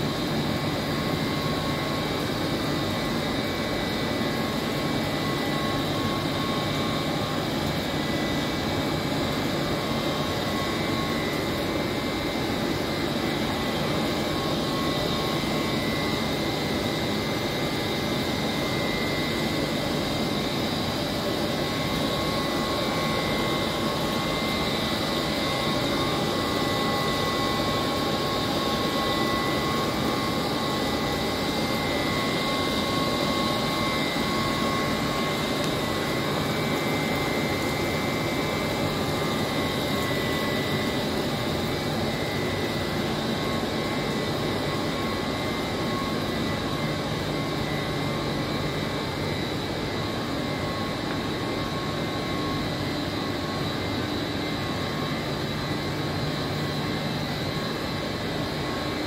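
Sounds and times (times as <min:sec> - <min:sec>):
high-pitched whine: 0:00.0 - 0:59.0.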